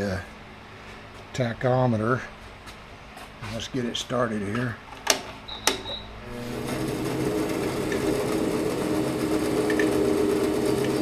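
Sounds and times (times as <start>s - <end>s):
bandsaw running with steady hum: 6.2s - 11.0s.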